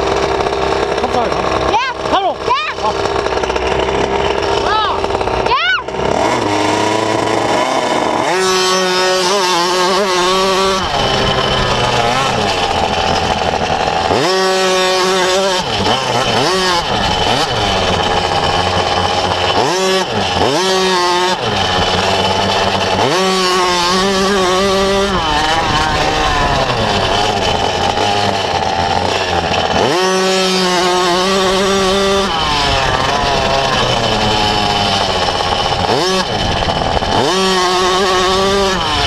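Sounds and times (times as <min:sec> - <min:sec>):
motorbike engine revving: 0:00.0 - 0:39.0.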